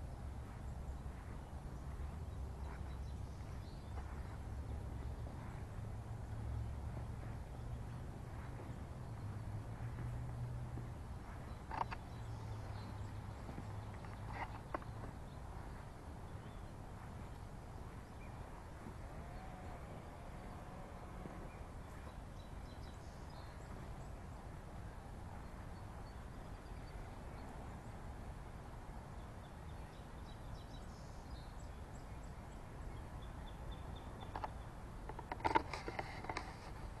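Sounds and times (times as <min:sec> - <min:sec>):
low outdoor rumble: 0:00.0 - 0:37.0.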